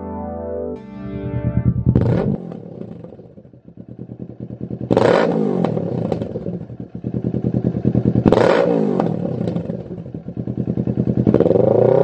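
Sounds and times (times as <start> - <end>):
synth music: 0.0 - 3.6
motorcycle engine revving and idling: 1.4 - 12.0.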